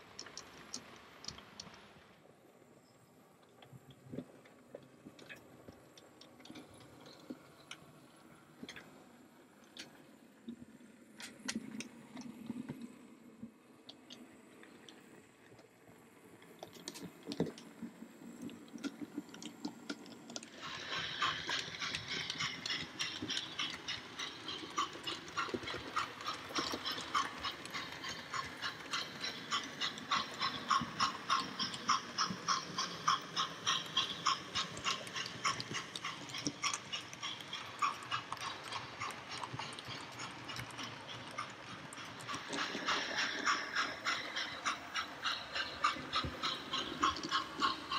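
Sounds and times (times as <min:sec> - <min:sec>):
model train clicking on track: 0:19.9 - 0:47.9.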